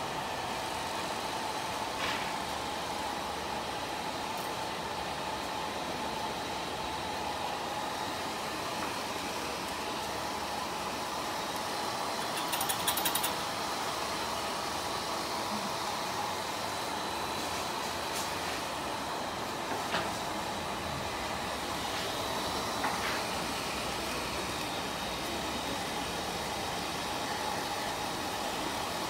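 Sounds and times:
rapid ticking: 0:12.2 - 0:13.4
hair dryer blowing air: 0:14.7 - 0:29.0.

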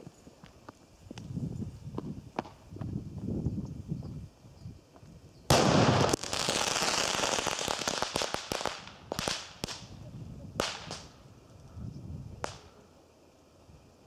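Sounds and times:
firecracker blast reverberation: 0:05.5 - 0:10.0, 0:10.6 - 0:11.2.

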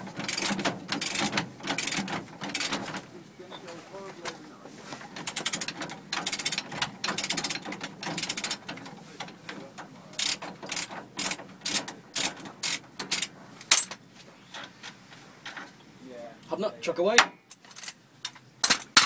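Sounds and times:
ratchet wrench clicking: 0:00.2 - 0:02.8, 0:05.2 - 0:08.7, 0:10.2 - 0:13.9.

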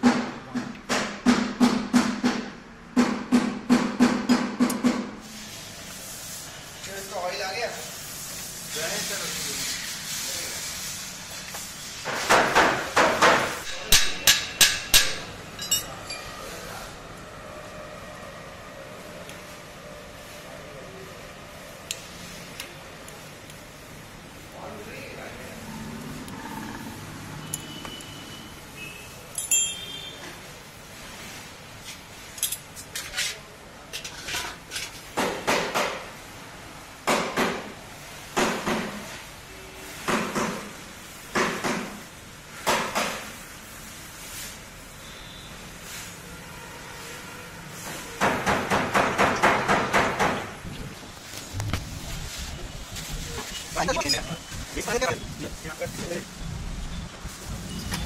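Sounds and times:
sharp metal knocks: 0:12.3 - 0:15.9
metal clinks and clanks: 0:15.6 - 0:16.4, 0:29.3 - 0:29.9
light metal clinks: 0:29.3 - 0:29.9.

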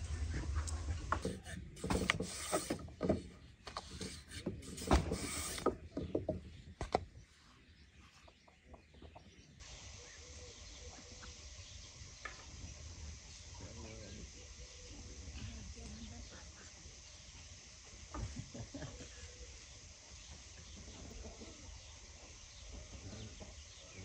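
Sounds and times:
background hiss: 0:09.6 - 0:24.0.

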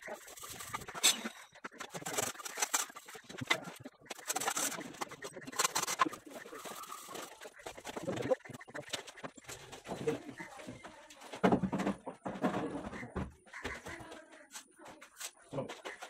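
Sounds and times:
sped-up trowel scraping and tapping: 0:00.0 - 0:09.9.

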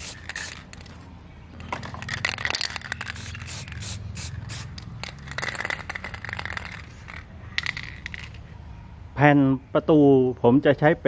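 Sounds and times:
spray paint can hissing: 0:00.0 - 0:00.9, 0:02.2 - 0:08.2.

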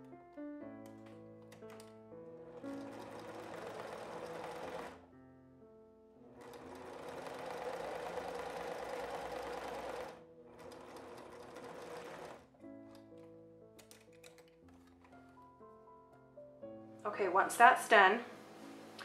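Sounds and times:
soft piano music: 0:00.0 - 0:19.0
sewing machine stitching: 0:02.4 - 0:05.0, 0:06.3 - 0:12.5.

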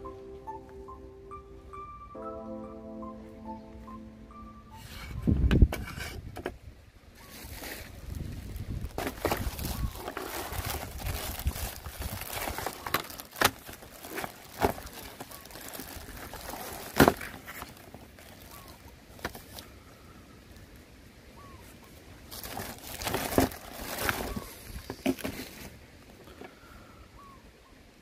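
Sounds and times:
plastic bag crinkling: 0:07.3 - 0:19.6, 0:22.3 - 0:25.8.

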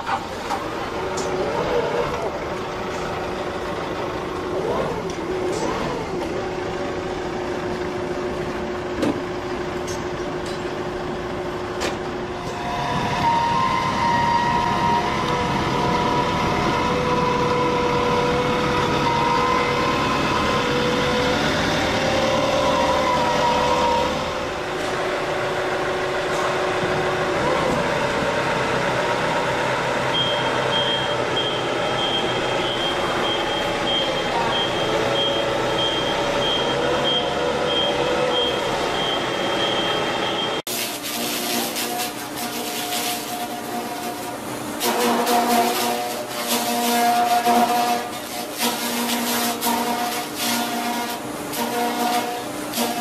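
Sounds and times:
forklift running: 0:00.0 - 0:53.0
warning beeper pulsing: 0:30.1 - 0:40.6.

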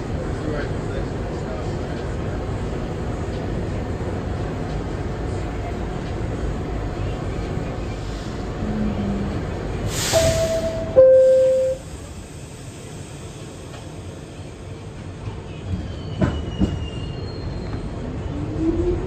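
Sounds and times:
subway car low rumble: 0:00.0 - 0:19.0
air hiss: 0:09.9 - 0:10.9
two-note falling door chime: 0:10.2 - 0:11.8.

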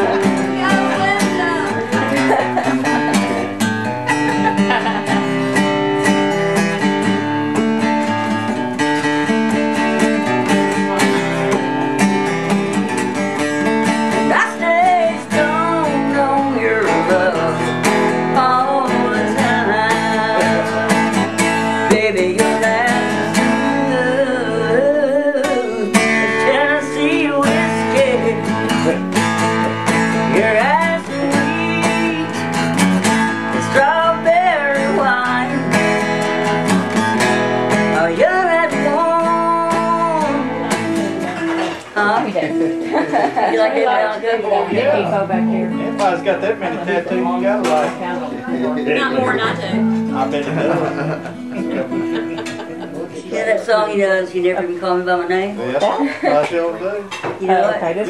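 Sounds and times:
woman singing: 0:00.0 - 0:03.4, 0:14.1 - 0:29.0, 0:29.6 - 0:36.4, 0:37.7 - 0:42.6
acoustic guitar strumming chords: 0:00.0 - 0:58.0.

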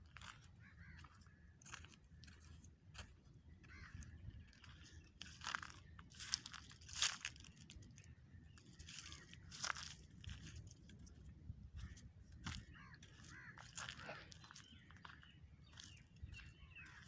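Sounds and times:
dry leaves and twigs crunching: 0:00.1 - 0:17.0.

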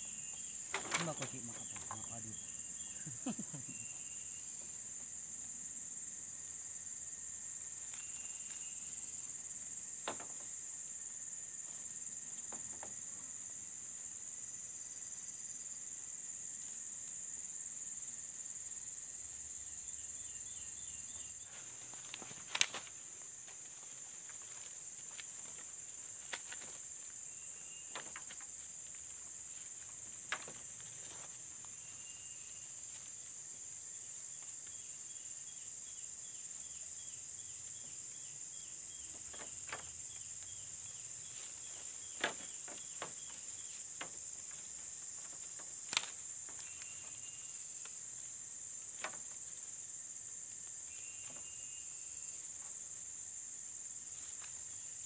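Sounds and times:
high-pitched insect chorus: 0:00.0 - 0:55.0
bamboo poles knocking: 0:00.7 - 0:02.1, 0:10.0 - 0:10.5, 0:27.9 - 0:29.0, 0:30.0 - 0:31.3, 0:42.1 - 0:46.7.

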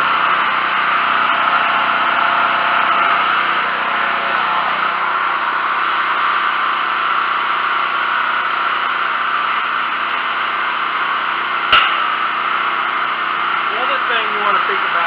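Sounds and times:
box fan whirring: 0:00.0 - 0:15.0
generator engine running: 0:00.0 - 0:15.0
sharp knock: 0:11.7 - 0:12.2.

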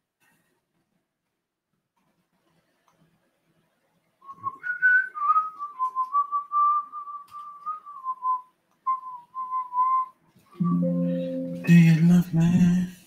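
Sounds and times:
person whistling a tune: 0:04.2 - 0:11.8.

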